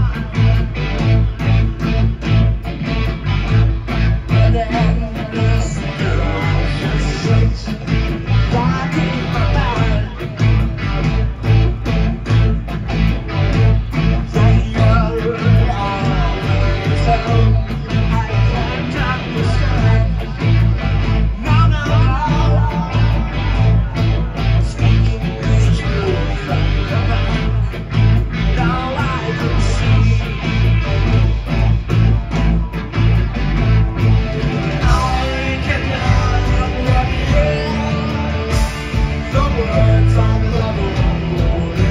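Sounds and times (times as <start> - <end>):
rock band playing live: 0.0 - 41.9
person singing: 4.1 - 10.6, 14.0 - 31.0, 34.8 - 41.9.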